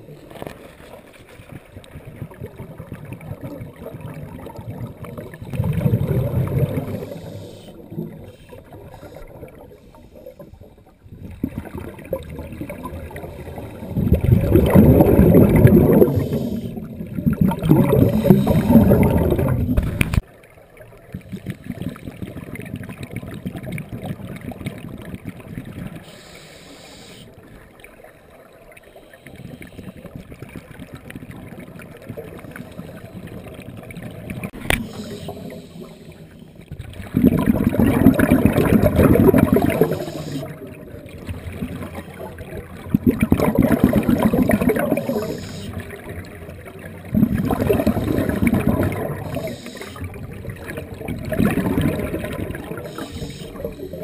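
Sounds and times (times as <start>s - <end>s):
crackling underwater noise: 0.0s - 54.0s
diver exhaust bubbles rushing: 2.2s - 8.3s, 11.3s - 20.2s, 36.8s - 46.3s, 47.0s - 54.0s.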